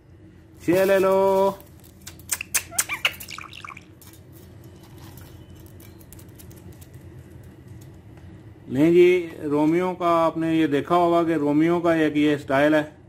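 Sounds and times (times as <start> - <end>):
faint steady hum: 0.0 - 13.0
parakeet chirping calls: 2.4 - 3.8.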